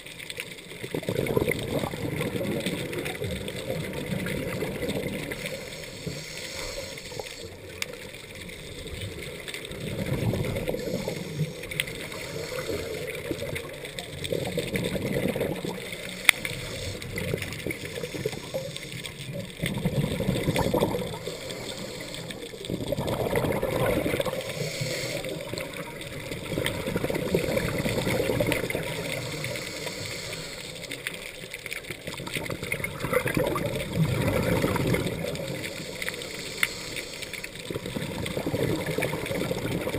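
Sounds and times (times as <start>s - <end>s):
exhaled bubbles gurgling: 0.0s - 39.9s
regulator hiss: 5.2s - 7.8s, 10.6s - 13.4s, 15.8s - 19.4s, 20.5s - 22.6s, 24.2s - 25.9s, 28.7s - 31.3s, 35.5s - 37.6s.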